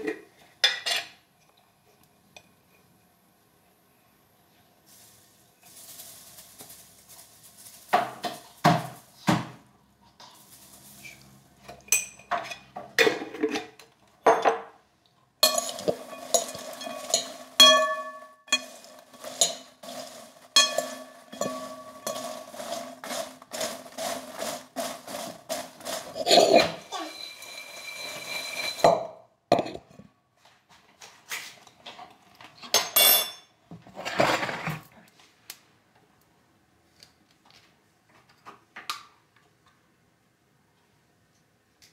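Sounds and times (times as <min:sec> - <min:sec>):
spoon rustling through popcorn: 0:04.5 - 0:13.7, 0:15.4 - 0:28.9
spoon clinking on glass bowl: 0:15.4 - 0:19.7, 0:20.6 - 0:22.5.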